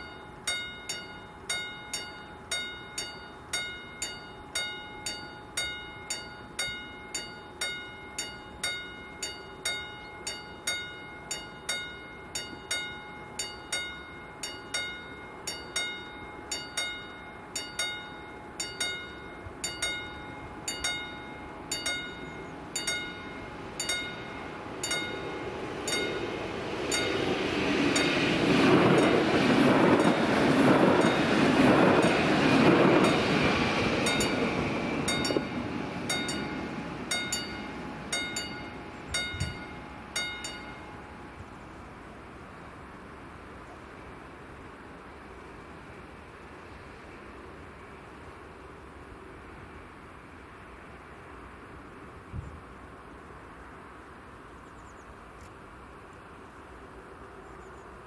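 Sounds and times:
level-crossing warning bell: 0.0 - 45.8
passing train running noise: 0.0 - 58.0.

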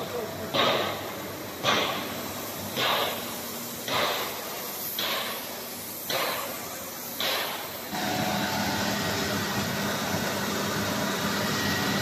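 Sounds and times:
steady machine hum: 0.0 - 12.0
sharp hiss bursts: 0.1 - 9.3.

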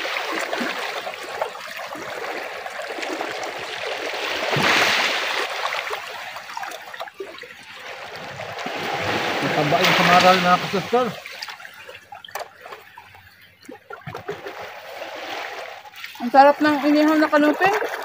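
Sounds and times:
waves lapping over rocks: 0.0 - 13.0, 14.0 - 18.0.

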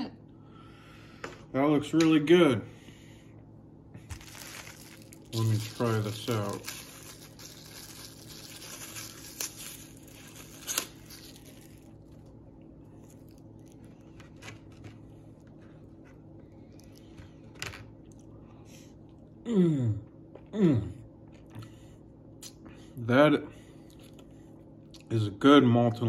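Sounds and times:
plastic wrapper crinkling: 4.0 - 12.4
person humming mmm: 19.4 - 21.0.

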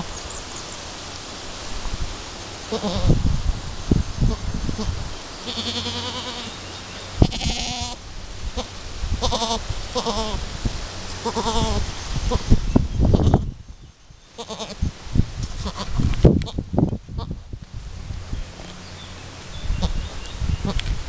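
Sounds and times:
goats bleating: 2.7 - 3.1, 5.4 - 6.6, 7.2 - 8.0, 8.6 - 10.4, 11.2 - 12.4, 14.4 - 14.8.

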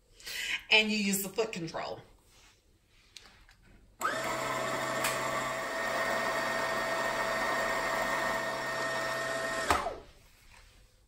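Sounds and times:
sewing machine motor whirring: 4.0 - 10.1.

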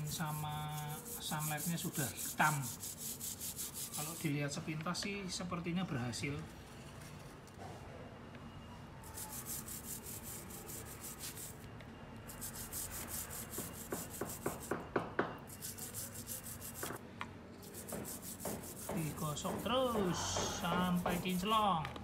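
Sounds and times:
toothbrush scrubbing a metal chain: 0.0 - 4.3, 9.1 - 11.6, 12.3 - 14.7, 15.5 - 17.0, 17.6 - 21.6.

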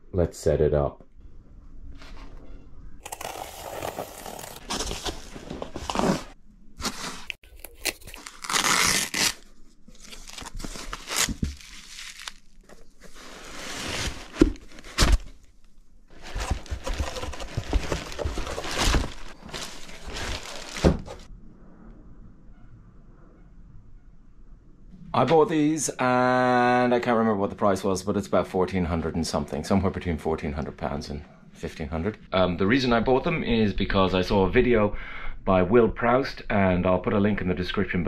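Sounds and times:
plastic wrap crinkling: 3.0 - 21.3
tape ripped with a knife: 6.8 - 9.5.

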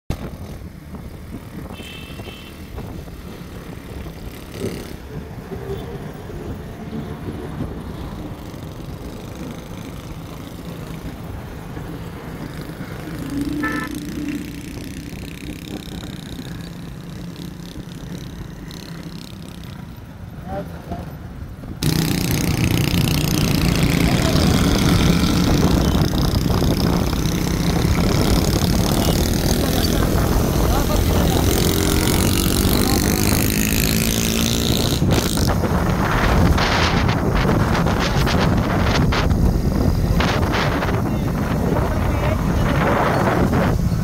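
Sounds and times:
motorcycle engines running: 0.1 - 44.0
horn toot: 1.6 - 2.6, 13.3 - 14.6.

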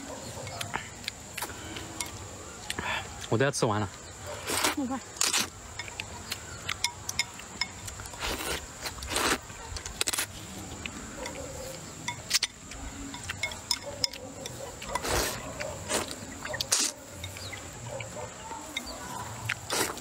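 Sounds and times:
wet chewing and lip-smacking: 0.3 - 3.3, 3.9 - 20.0
noodles slurped: 8.0 - 10.3, 14.8 - 17.0, 19.4 - 20.0.

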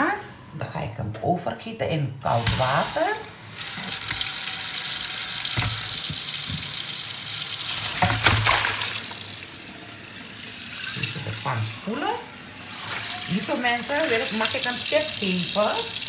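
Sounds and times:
tap running into sink: 3.6 - 7.0, 7.6 - 9.3
short knocks: 5.6 - 6.8.

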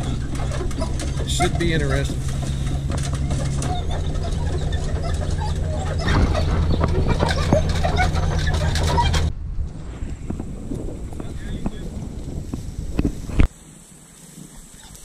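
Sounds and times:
box rattling and knocking: 0.0 - 9.3
truck engine and road hum: 0.0 - 15.0.

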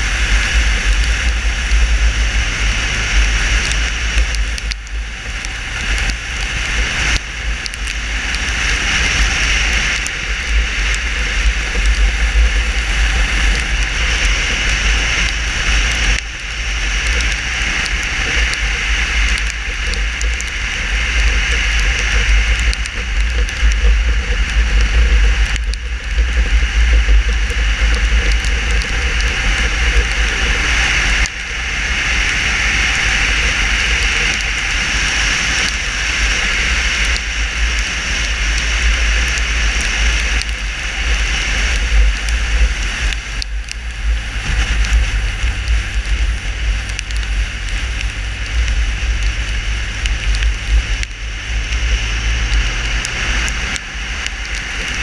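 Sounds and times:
tyres hissing on wet tarmac: 0.0 - 55.0
wind buffeting: 0.0 - 55.0
steady low hum: 10.0 - 34.7.

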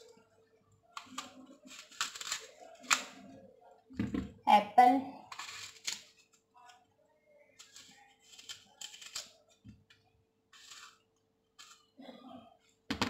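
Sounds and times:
knife scraping apple skin: 10.5 - 11.0.

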